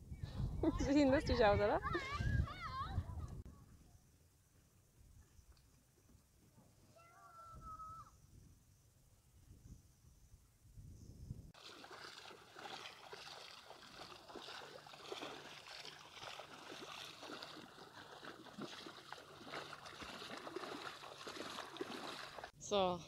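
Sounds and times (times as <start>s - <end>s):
feet wading through water: 11.6s - 22.6s
trickling water: 11.6s - 22.6s.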